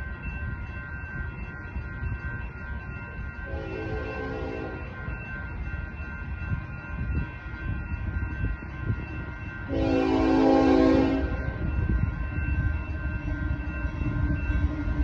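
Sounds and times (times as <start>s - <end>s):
low train rumble: 0.0s - 15.0s
railroad crossing bells ringing: 0.0s - 15.0s
train horn blast: 3.5s - 4.8s, 9.7s - 11.6s.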